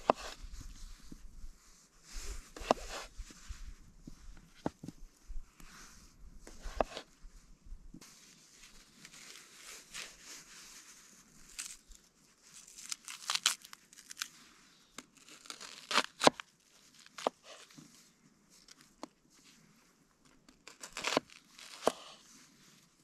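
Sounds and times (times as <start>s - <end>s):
knife slicing vegetables on board: 2.6s - 3.1s, 6.6s - 7.0s.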